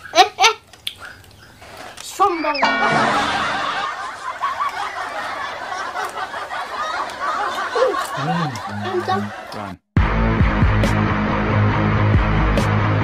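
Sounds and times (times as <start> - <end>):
many voices chuckling: 2.9 - 9.8.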